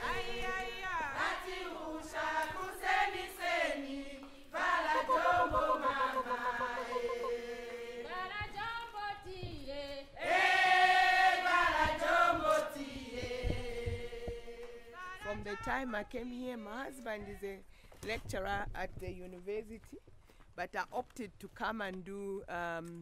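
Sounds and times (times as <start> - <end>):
choir singing held notes: 0.0 - 8.4, 10.1 - 15.2.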